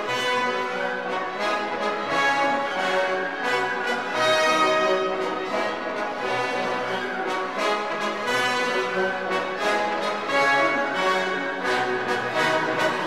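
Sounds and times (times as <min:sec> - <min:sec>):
orchestral music led by brass: 0:00.0 - 0:13.0.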